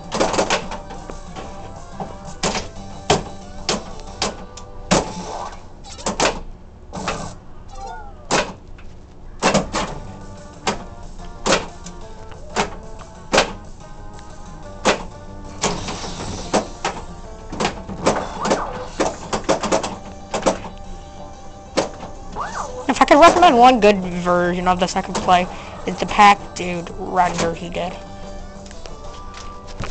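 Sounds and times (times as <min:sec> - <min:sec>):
pinball electronic music and effects: 0:00.0 - 0:06.2, 0:07.0 - 0:08.5, 0:09.4 - 0:28.6
pinball playfield knocks: 0:14.8 - 0:20.8.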